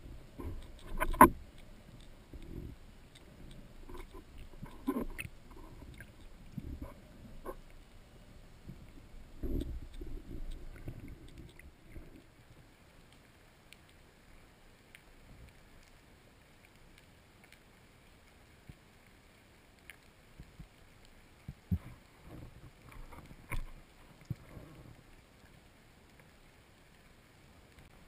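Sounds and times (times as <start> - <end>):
low rumbling bumps underwater: 0.0 - 12.5
faint steady hiss: 0.0 - 28.0.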